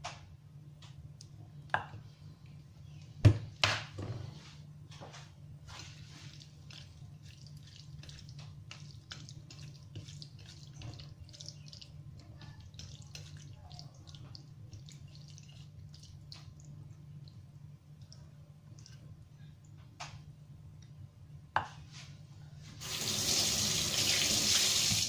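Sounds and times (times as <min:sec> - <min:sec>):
steady low hum: 0:00.0 - 0:22.8
wet meat squelching: 0:05.7 - 0:17.4.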